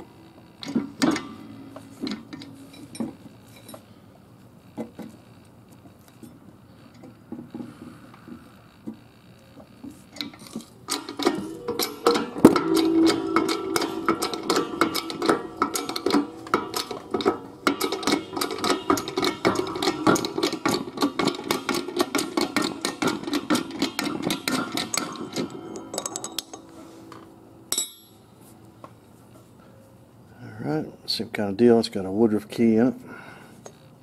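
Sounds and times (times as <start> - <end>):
metal-on-metal strokes: 0.7 - 3.8, 10.9 - 28.6.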